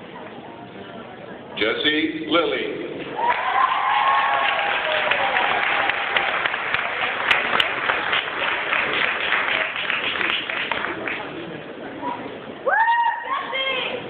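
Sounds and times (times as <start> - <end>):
voices in crowd: 0.0 - 14.0
audience applauding: 3.2 - 11.4.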